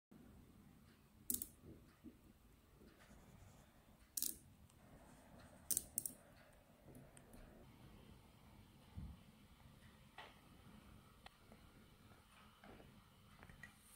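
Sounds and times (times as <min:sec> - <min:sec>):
magnetic balls snapping together: 0:01.3 - 0:01.6, 0:04.1 - 0:04.4, 0:05.7 - 0:06.2.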